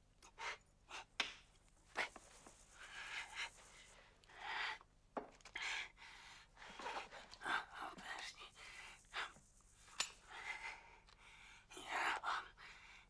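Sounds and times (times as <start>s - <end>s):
rubbing noises: 1.3s - 4.2s, 6.7s - 10.6s.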